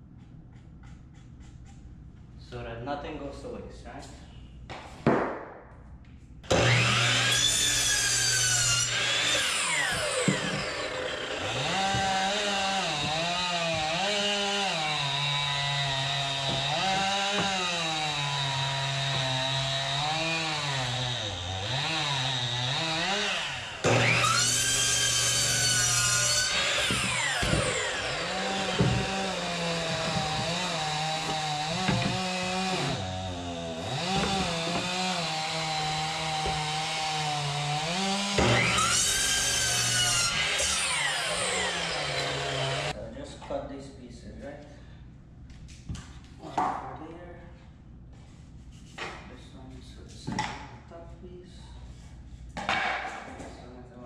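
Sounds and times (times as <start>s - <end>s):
miter saw cutting: 6.5s - 43.0s.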